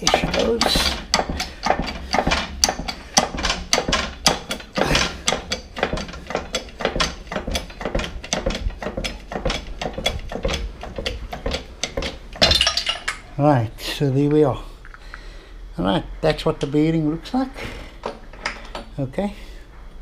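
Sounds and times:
hydraulic press pump clicking: 0.0 - 12.6
metal clank: 0.0 - 13.3.

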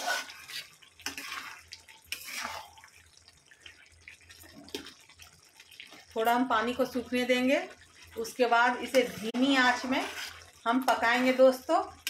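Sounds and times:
spatula slopping in wet curry: 0.0 - 6.2, 8.9 - 11.3.

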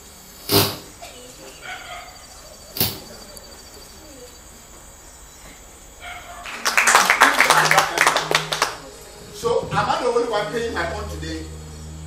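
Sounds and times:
faint background sounds: 0.0 - 12.0
sharp knock: 2.8 - 3.1.

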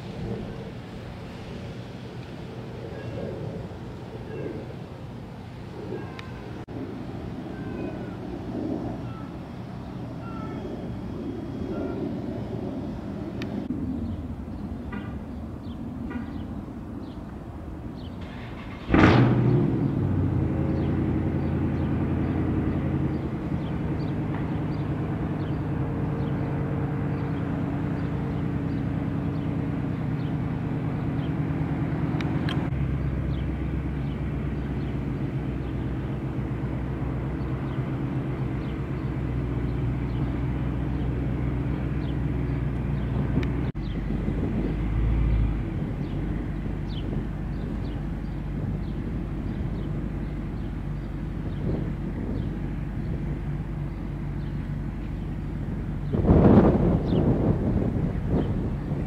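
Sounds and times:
car engine starting and idling: 18.0 - 43.8.

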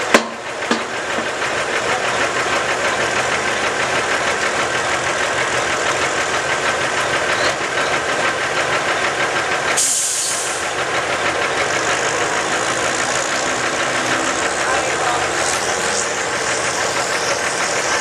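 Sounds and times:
diesel engine idling: 0.0 - 18.0
short hiss: 9.8 - 10.7.

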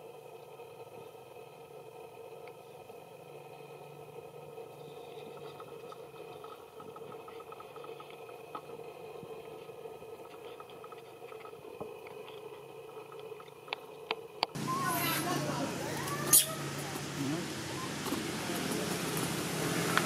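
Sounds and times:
faint outdoor hum: 0.0 - 20.0
soft ticks and rustles: 4.8 - 14.6.

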